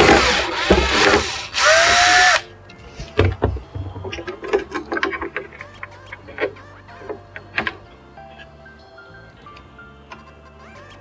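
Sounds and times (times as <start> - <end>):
screws and parts clicking: 0.0 - 2.4
electric screwdriver whine: 0.0 - 2.5.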